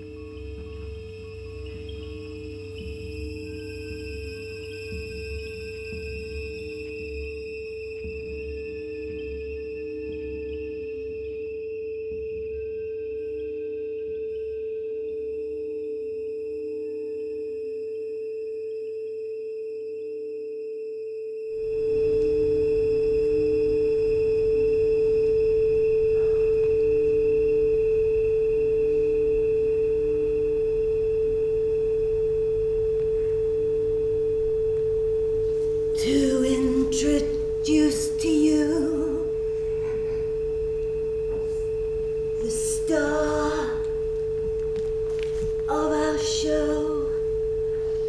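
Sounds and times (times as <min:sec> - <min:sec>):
faint pulsing tone: 0:00.0 - 0:48.0
electronic drone: 0:21.5 - 0:48.0
low hum: 0:21.5 - 0:48.0.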